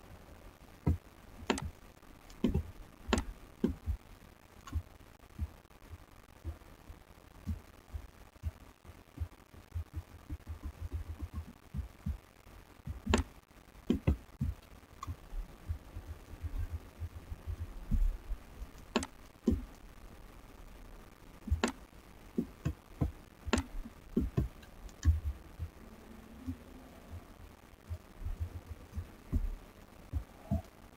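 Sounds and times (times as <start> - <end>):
faint steady hum: 0.0 - 30.9
sharp clicks: 12.9 - 19.9, 21.4 - 25.8.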